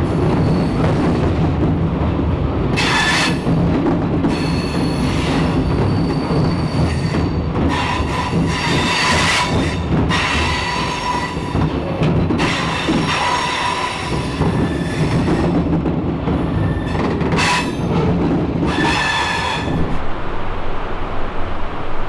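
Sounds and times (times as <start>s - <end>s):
train rumbling: 0.0s - 22.0s
metal wheels squealing: 4.3s - 11.6s, 12.4s - 15.5s, 18.7s - 19.8s.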